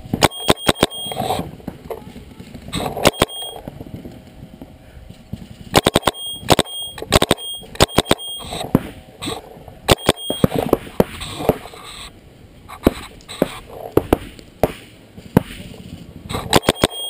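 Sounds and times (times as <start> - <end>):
paintball marker firing bursts: 0.1 - 1.9, 2.7 - 3.7, 5.7 - 12.1, 12.8 - 15.7, 16.3 - 17.0.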